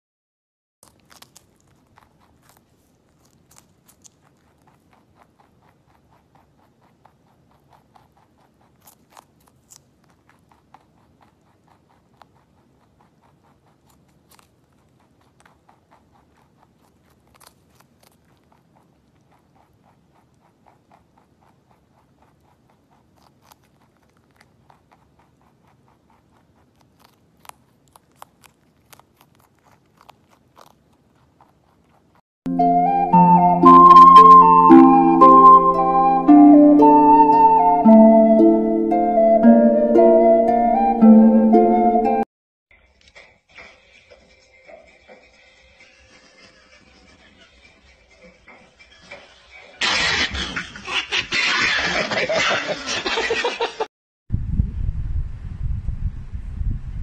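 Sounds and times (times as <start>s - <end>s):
rabbit chewing crunching bites: 0.8s - 32.2s.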